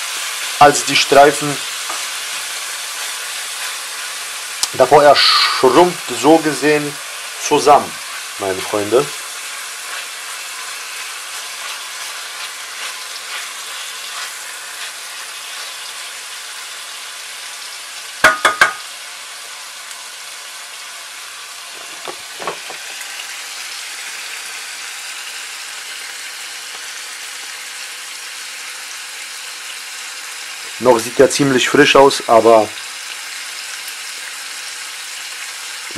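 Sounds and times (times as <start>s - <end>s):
bacon sizzling in frying pan: 0.0s - 35.9s
wooden stick scraping pan: 8.0s - 8.9s, 9.8s - 15.8s
sharp knocks: 18.2s - 18.8s.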